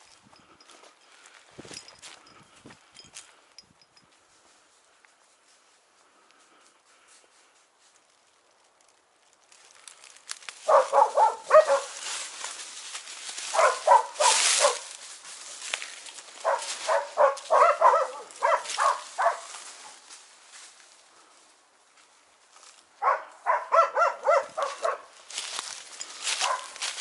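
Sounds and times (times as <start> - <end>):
dogs barking: 10.6 - 12.1, 13.4 - 14.9, 16.4 - 19.6, 23.0 - 25.1, 26.3 - 26.9.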